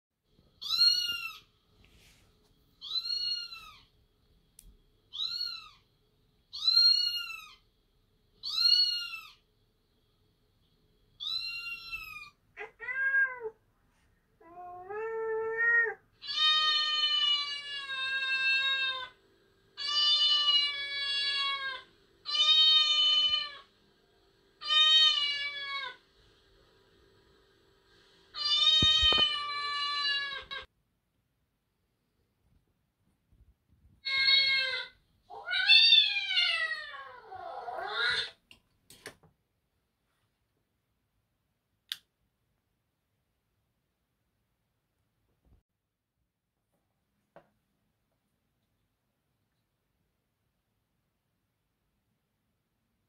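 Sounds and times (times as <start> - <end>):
cat meowing: 11.2 - 13.6, 14.4 - 19.1, 34.0 - 38.4.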